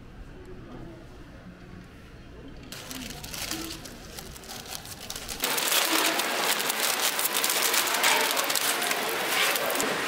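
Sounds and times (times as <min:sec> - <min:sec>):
plastic bag crinkling: 0:02.7 - 0:10.0.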